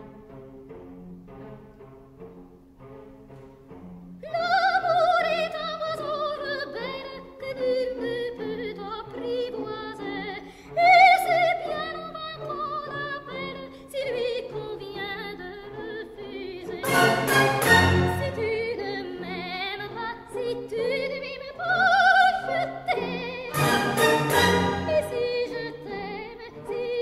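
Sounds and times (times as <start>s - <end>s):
operatic soprano singing: 4.2s - 27.0s
orchestral accompaniment: 16.8s - 20.1s, 23.0s - 26.9s.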